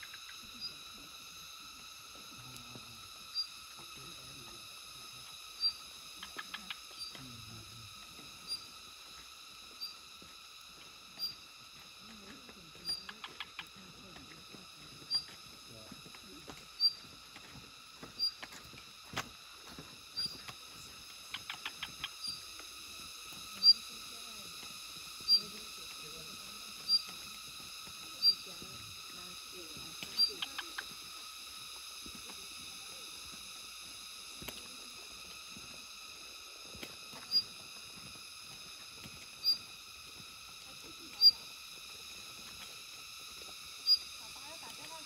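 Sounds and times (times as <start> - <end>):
small animal chirps: 0.0 - 0.9, 3.3 - 3.6, 5.4 - 7.3, 8.4 - 8.8, 9.8 - 10.0, 11.2 - 11.5, 12.8 - 13.8, 15.0 - 15.4, 16.8 - 17.0, 18.2 - 18.5, 20.2 - 20.4, 21.1 - 22.6, 23.5 - 23.9, 25.2 - 25.6, 26.8 - 27.3, 28.2 - 28.5, 30.0 - 31.1, 37.2 - 37.6, 39.4 - 39.7, 41.0 - 41.5, 43.8 - 45.0
high ringing insect chorus: 0.0 - 45.0
high-pitched background hum: 0.0 - 45.0.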